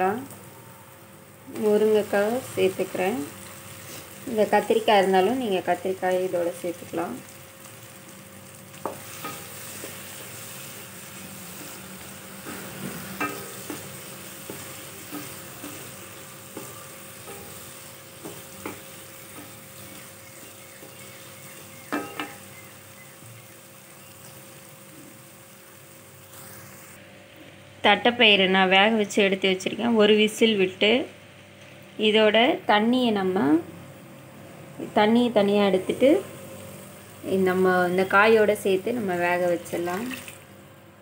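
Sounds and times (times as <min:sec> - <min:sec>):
food sizzling in a pan: 0:00.0 - 0:27.0, 0:35.7 - 0:40.5.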